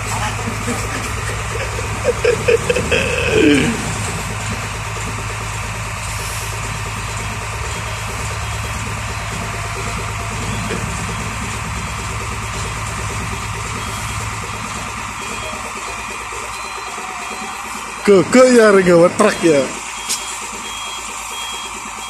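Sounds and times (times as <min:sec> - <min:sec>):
truck diesel engine idling: 0:00.0 - 0:22.0
short pitched sounds: 0:02.0 - 0:04.2.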